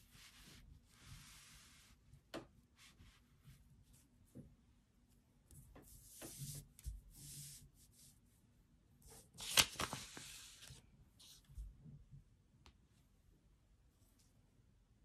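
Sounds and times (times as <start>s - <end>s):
paper rustling on felt mat: 5.8s - 8.0s, 9.0s - 11.6s.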